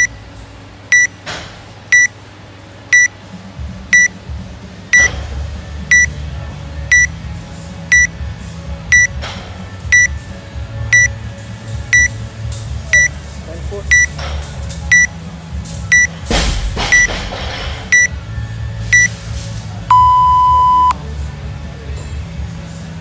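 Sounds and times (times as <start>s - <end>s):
short high electronic beeps: 0.9s - 1.1s, 1.9s - 2.1s, 2.9s - 3.1s, 7.9s - 8.1s, 11.9s - 12.1s, 13.9s - 14.1s, 15.9s - 16.1s, 19.9s - 21.0s.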